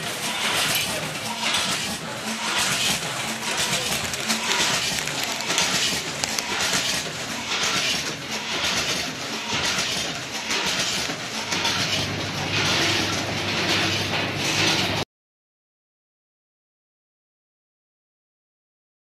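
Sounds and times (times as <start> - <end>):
packaging machine clatter: 0.0 - 15.0.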